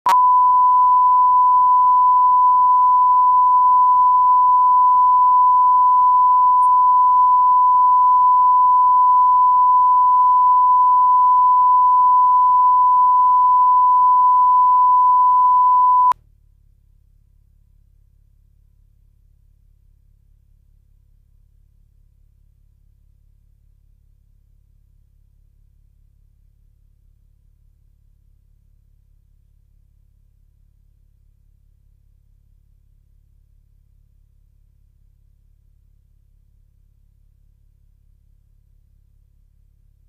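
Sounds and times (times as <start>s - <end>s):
steady test tone: 0.1s - 16.2s
faint low hum: 0.1s - 40.0s.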